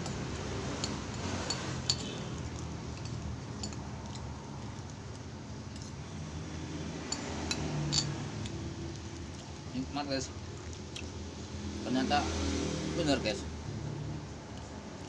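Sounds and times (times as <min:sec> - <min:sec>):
cutlery clinking on container: 0:00.0 - 0:04.3.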